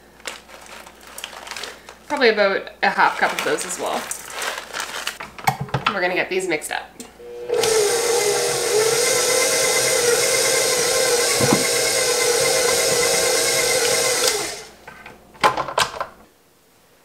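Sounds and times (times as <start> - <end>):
electric stand mixer running: 7.2 - 14.8.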